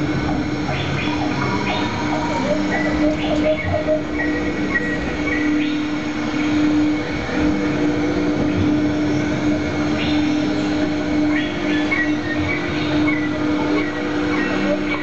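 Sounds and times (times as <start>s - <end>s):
ride mechanical hum: 0.0s - 15.0s.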